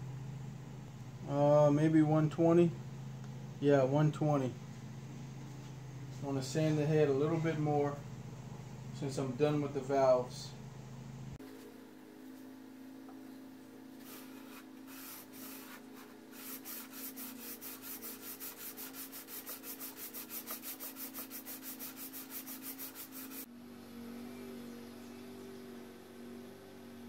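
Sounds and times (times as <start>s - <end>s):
steady low hum: 0.0s - 27.0s
sandpaper rubbing on cast iron: 14.0s - 23.5s.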